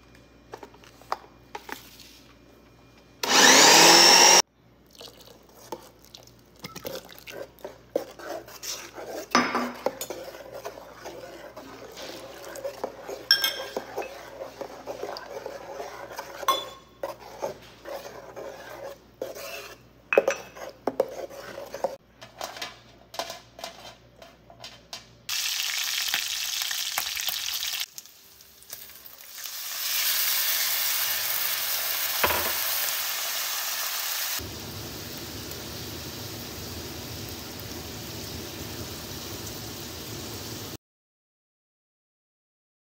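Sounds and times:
spoon clinking against metal bowl: 13.2s - 14.2s, 16.4s - 17.0s
bacon sizzling in skillet: 25.3s - 40.8s.

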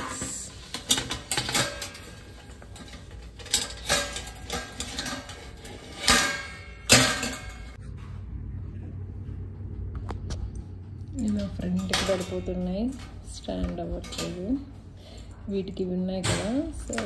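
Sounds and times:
metal plates clinking on rack: 0.0s - 7.8s, 11.2s - 15.2s.

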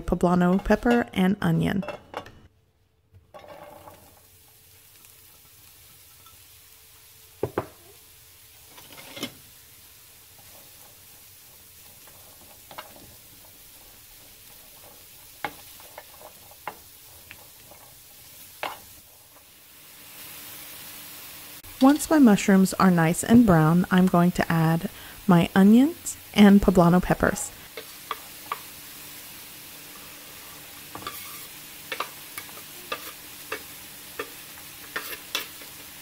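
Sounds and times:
mushrooms sizzling in oil: 3.5s - 36.0s
wooden spoon knocking a pan: 7.4s - 7.8s.

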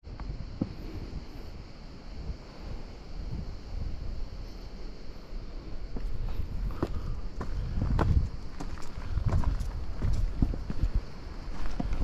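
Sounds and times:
wind rumble on microphone: 0.0s - 12.0s
footsteps on gravel path: 5.8s - 12.0s.

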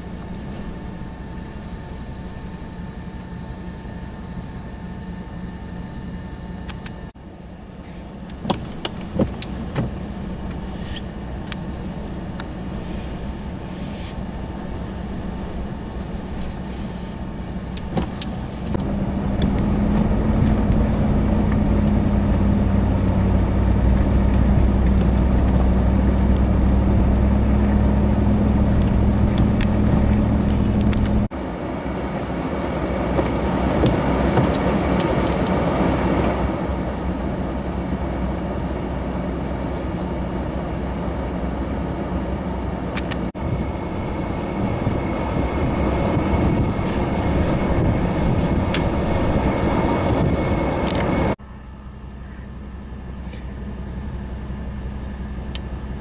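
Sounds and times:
vehicle engine drone: 0.0s - 56.0s
blizzard wind on microphone: 9.6s - 51.4s.

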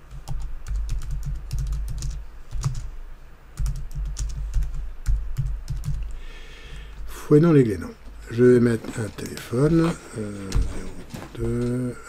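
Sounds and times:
typing on computer keyboard: 0.1s - 2.9s, 3.6s - 6.1s.

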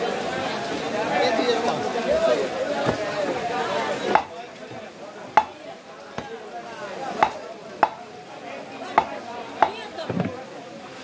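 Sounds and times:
knife chopping fish on wood: 2.8s - 3.1s, 4.1s - 6.4s, 7.2s - 8.0s, 8.9s - 10.3s.

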